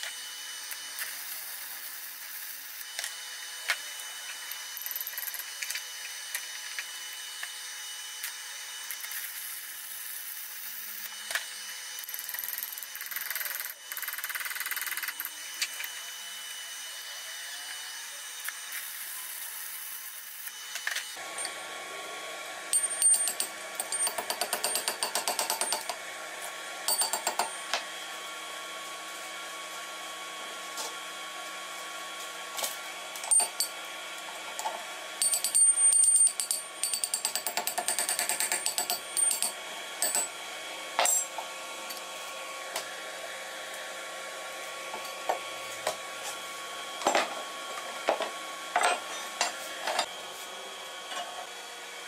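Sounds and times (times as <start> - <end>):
chipping hammer tapping metal: 22.7 - 26.0, 26.9 - 27.8, 34.6 - 40.3.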